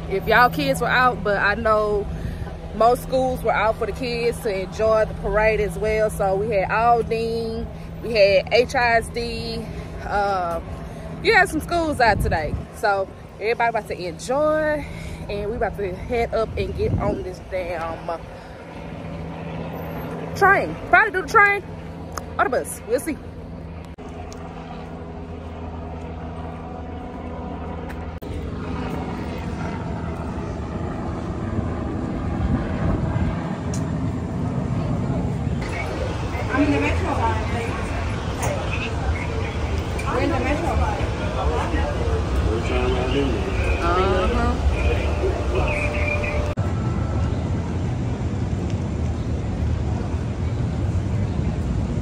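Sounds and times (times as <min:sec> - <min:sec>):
city street rumble: 0:00.0 - 0:52.0
light-rail train running: 0:34.4 - 0:52.0.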